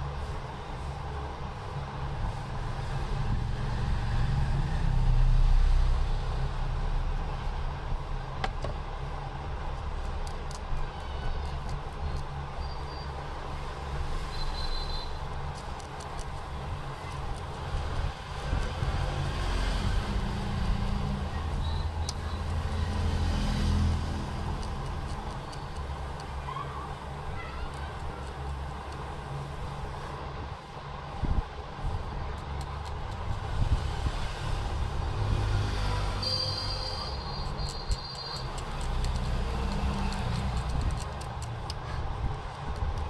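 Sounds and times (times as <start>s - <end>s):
vehicle rumbling by: 0.0s - 9.6s, 16.0s - 27.8s, 30.2s - 43.0s.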